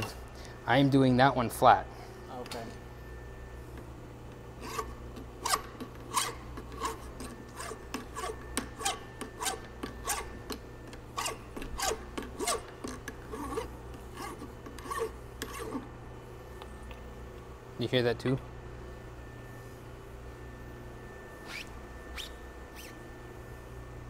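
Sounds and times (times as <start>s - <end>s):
hand file scraping metal: 4.6s - 10.5s, 11.1s - 15.9s.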